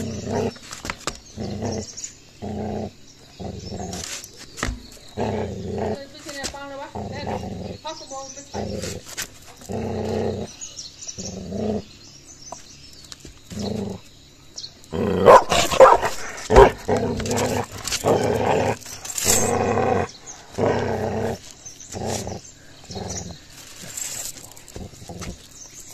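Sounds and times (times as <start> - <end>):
puppy growling: 0.0 - 0.6, 1.2 - 4.3, 5.0 - 12.0, 13.5 - 14.1, 14.8 - 25.9
puppy snarling and barking: 14.9 - 25.5.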